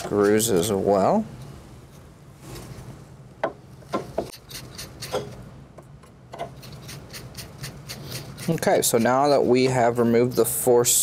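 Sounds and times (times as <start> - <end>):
screwdriver scraping metal: 4.3 - 5.4, 6.3 - 9.6.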